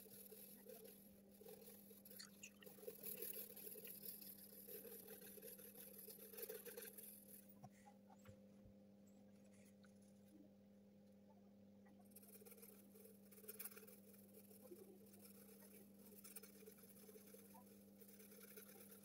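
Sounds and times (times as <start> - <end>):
pencil scratching on paper: 0.0 - 7.5, 12.0 - 19.0
steady low hum: 0.0 - 19.0.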